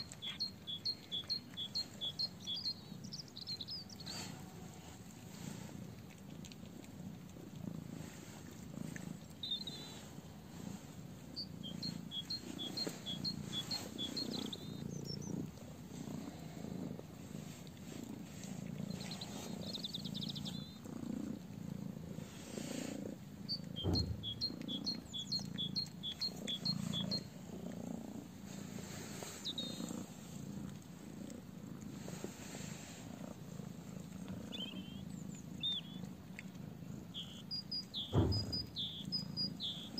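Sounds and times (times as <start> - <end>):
songbird singing: 0.0 - 5.0, 8.4 - 18.0, 18.7 - 21.5, 23.3 - 27.4, 28.4 - 31.3, 33.9 - 39.9
cat purring: 0.0 - 39.9.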